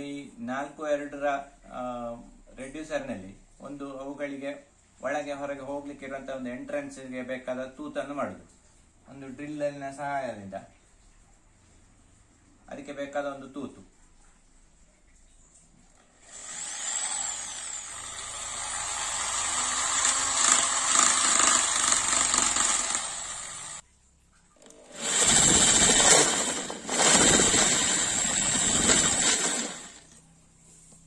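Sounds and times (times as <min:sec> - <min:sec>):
electric drill boring plastic pipe: 0:16.2 - 0:23.8, 0:24.6 - 0:30.1.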